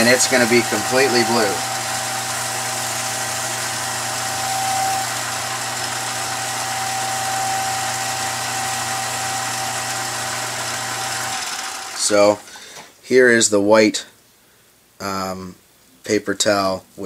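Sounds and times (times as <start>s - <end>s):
paper towel hissing on spinning shaft: 0.0s - 9.4s
lathe motor hum and whine: 0.0s - 12.1s.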